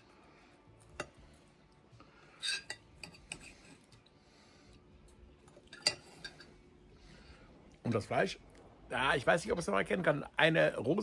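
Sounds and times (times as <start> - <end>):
cutlery clinking on a plate: 2.4 - 3.6, 5.6 - 6.6.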